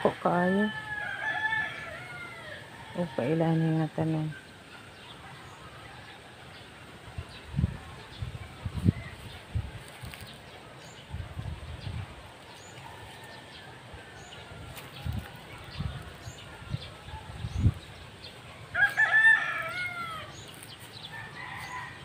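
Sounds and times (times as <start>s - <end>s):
rooster crowing: 0.0s - 3.5s, 18.7s - 20.5s, 21.1s - 22.0s.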